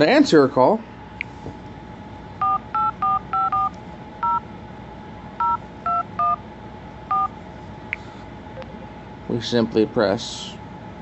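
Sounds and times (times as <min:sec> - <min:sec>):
phone keypad beeps: 0:02.4 - 0:04.4, 0:05.4 - 0:06.4, 0:07.1 - 0:07.3.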